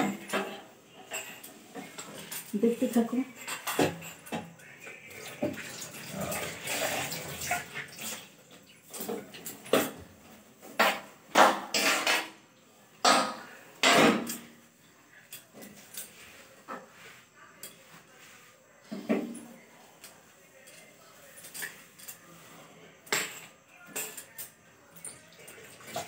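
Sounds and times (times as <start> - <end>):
small metal clinks and knocks: 0.1 - 4.8, 19.3 - 22.4, 23.0 - 26.0.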